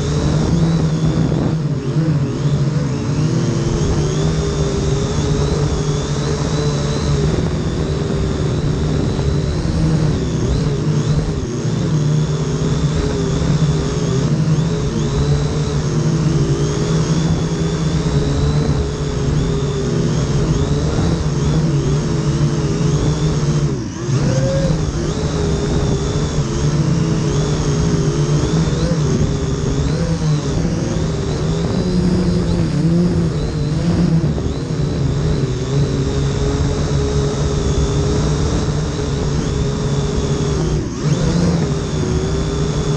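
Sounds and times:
drone motors whining: 0.0s - 42.9s
wind buffeting microphone: 0.0s - 42.9s.

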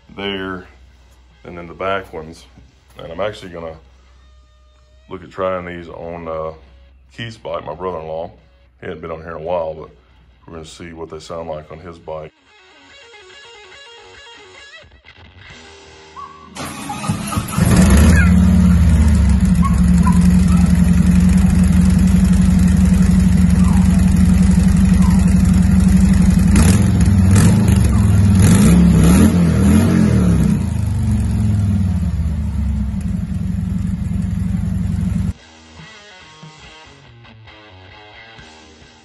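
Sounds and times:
motorcycle engine revving: 16.6s - 35.4s
motorcycle engine starting and idling: 16.6s - 35.4s.

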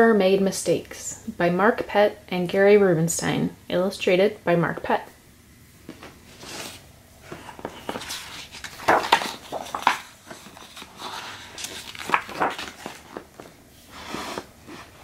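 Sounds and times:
book pages turning: 5.9s - 15.0s.

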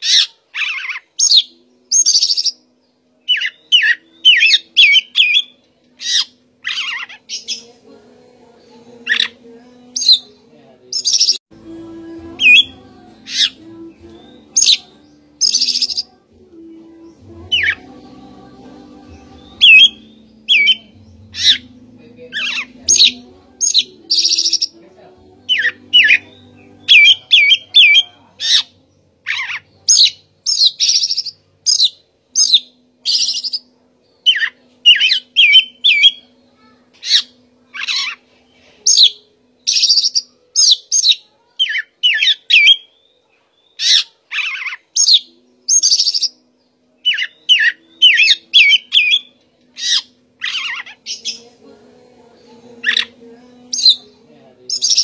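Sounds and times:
songbird singing varied phrases: 0.0s - 7.8s, 8.6s - 11.4s, 12.4s - 18.3s, 19.0s - 38.2s, 38.9s - 55.0s.

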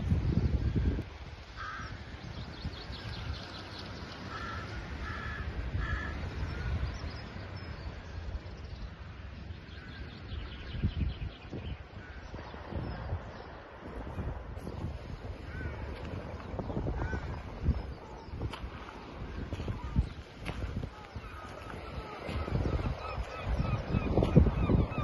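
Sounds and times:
wind rumble on microphone: 0.0s - 25.0s
crow cawing: 1.6s - 2.0s, 4.3s - 6.2s.

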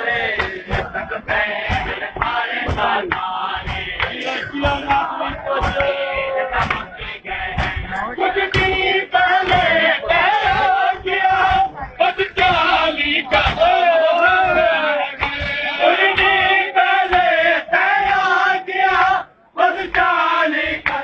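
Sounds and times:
men chanting a lament: 0.0s - 21.0s
hands slapping bare chests: 1.6s - 6.9s, 9.4s - 9.8s, 15.2s - 17.3s.

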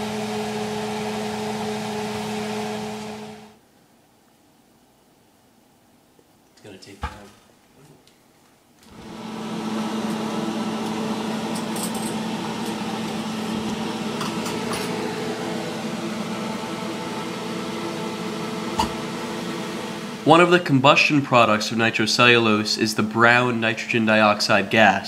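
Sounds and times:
exhaust fan humming: 8.9s - 22.4s.

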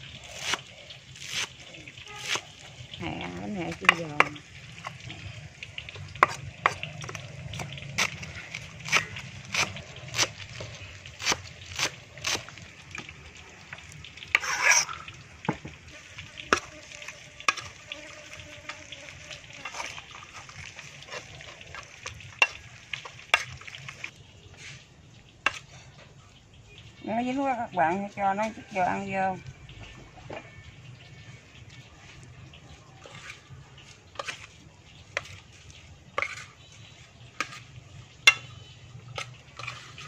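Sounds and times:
oil sizzling: 0.0s - 40.0s
oil crackling burst: 4.5s - 24.2s.

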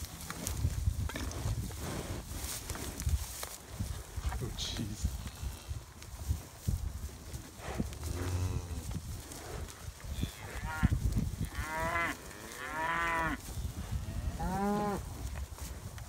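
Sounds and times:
cattle mooing: 8.1s - 8.8s, 11.5s - 13.4s, 14.1s - 15.0s.

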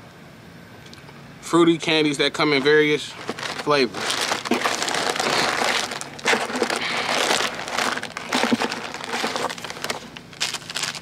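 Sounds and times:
plastic packet crinkling: 2.6s - 11.0s.

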